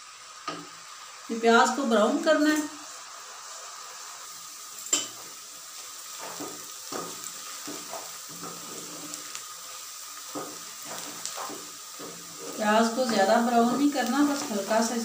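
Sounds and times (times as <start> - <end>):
onions sizzling in hot oil: 0.0 - 15.0
wooden spatula scraping pot: 10.3 - 13.3.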